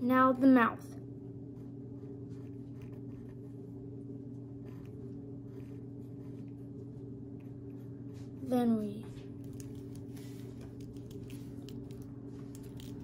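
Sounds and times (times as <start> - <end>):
low hum: 0.0 - 13.0
pencil scratching on paper: 1.6 - 8.3.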